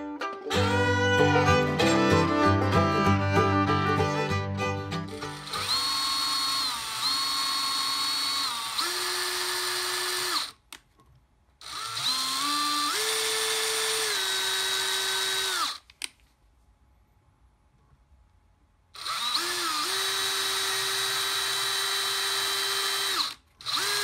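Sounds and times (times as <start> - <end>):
fiddle background music: 0.0 - 5.8
cordless drill into metal: 5.2 - 10.6, 11.6 - 15.9, 19.0 - 24.0.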